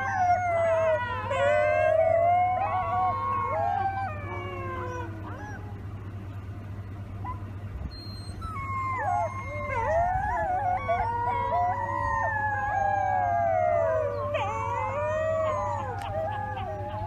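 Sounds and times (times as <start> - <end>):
steady low hum: 0.0 - 17.0
wolf pups howling: 0.0 - 17.0.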